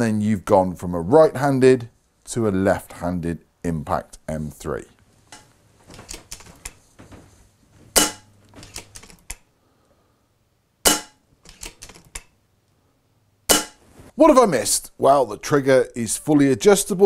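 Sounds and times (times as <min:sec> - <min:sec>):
sharp metallic clacks: 0:08.0 - 0:09.4, 0:10.9 - 0:12.3, 0:13.5 - 0:13.8
rifle lever clicks: 0:11.5 - 0:12.3.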